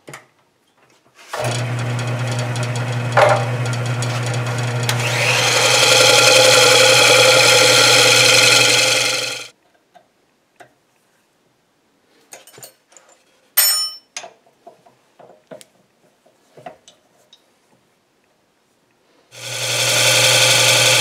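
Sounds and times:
disc sander running: 1.4s - 9.5s, 19.4s - 21.0s
ringing metal clink: 13.6s - 14.1s.

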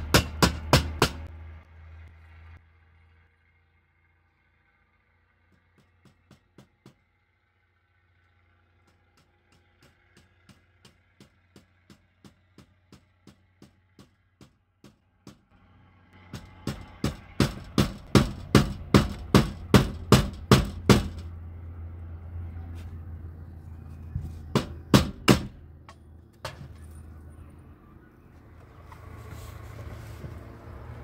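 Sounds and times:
hammer driving nails into wood: 0.0s - 1.3s, 16.3s - 21.3s, 24.5s - 25.6s.

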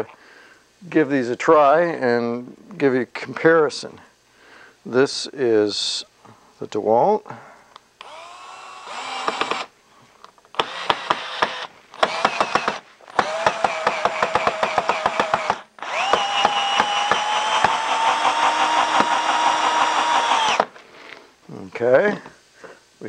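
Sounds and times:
screwdriver bit clicking: 8.0s - 9.6s
cordless screwdriver motor whine: 8.0s - 9.7s, 10.6s - 14.1s, 14.9s - 20.7s.

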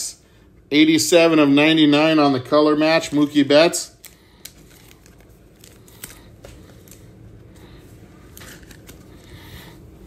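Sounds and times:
low room hum: 0.0s - 10.0s
card clicks and rustles: 4.0s - 9.4s.

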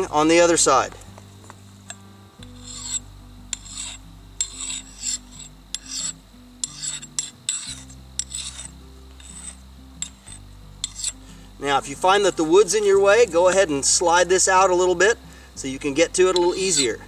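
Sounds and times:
file scraping axe blade: 2.4s - 11.3s, 16.2s - 17.0s.

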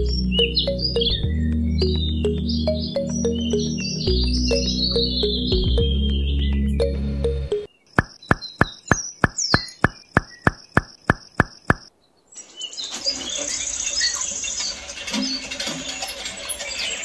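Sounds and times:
birds chirping: 0.0s - 14.8s
quick loud clicks: 8.0s - 11.9s.

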